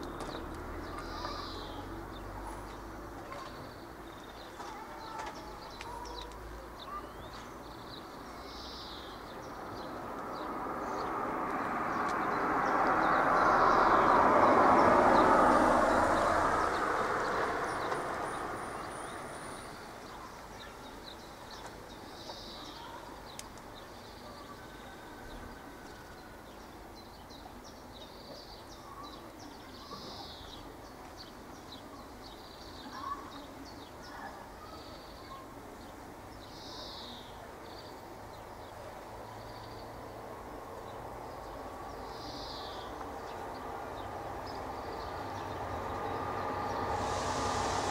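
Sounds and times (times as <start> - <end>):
birds chirping: 0.0 - 47.9
vehicle passing by: 9.5 - 20.1, 39.0 - 47.9.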